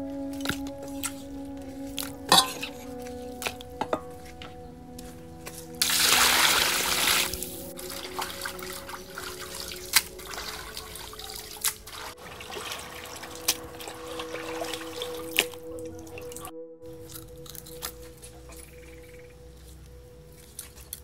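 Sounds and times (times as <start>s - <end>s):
water rushing: 5.8s - 16.5s
water sloshing and trickling: 5.8s - 17.1s.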